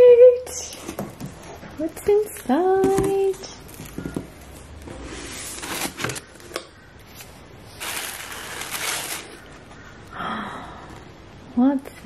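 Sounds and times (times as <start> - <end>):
tissue paper rustling: 5.0 - 6.2, 7.2 - 9.6.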